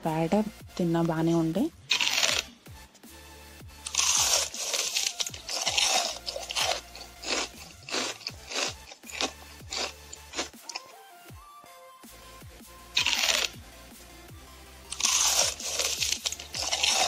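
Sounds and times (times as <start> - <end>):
faint background music: 0.0 - 17.0
biting crunches: 1.9 - 2.5, 3.8 - 11.0, 13.0 - 13.6, 14.9 - 17.0
crunchy chewing: 1.9 - 2.5, 3.8 - 11.0, 13.0 - 13.6, 14.9 - 17.0.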